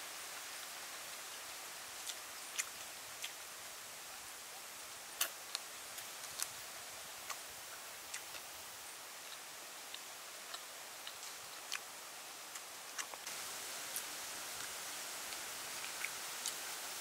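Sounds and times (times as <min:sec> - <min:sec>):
steady hiss: 0:00.0 - 0:17.0
person biting and chewing: 0:02.0 - 0:03.4, 0:05.2 - 0:05.6, 0:06.2 - 0:06.5, 0:08.1 - 0:08.5, 0:12.5 - 0:13.2.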